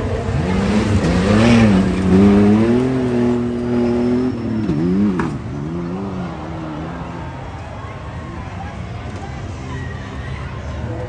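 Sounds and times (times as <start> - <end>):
truck engine revving: 0.0 - 7.4.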